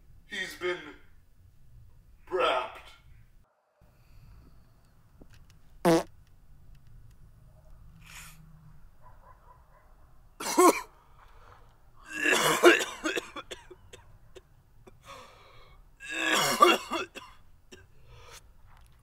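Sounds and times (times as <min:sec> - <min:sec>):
man coughing: 0:10.4 - 0:10.9, 0:12.1 - 0:14.5, 0:16.0 - 0:17.9.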